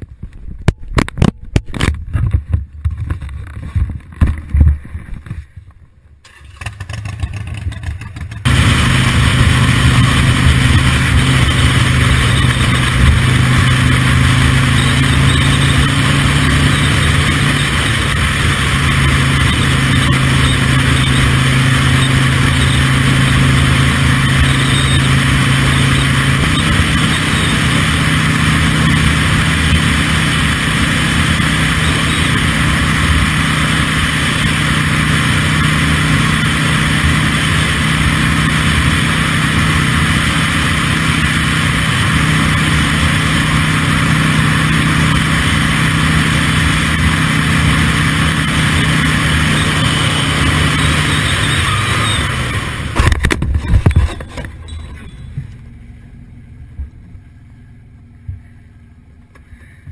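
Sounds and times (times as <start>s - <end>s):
motorcycle engine running: 0.0s - 59.8s
knocks and thumps: 0.7s - 5.5s, 53.0s - 54.6s.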